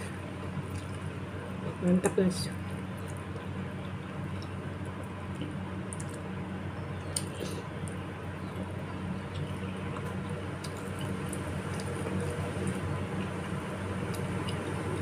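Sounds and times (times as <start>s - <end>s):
steady low hum: 0.0s - 15.0s
wet chewing: 0.6s - 1.6s, 8.6s - 15.0s.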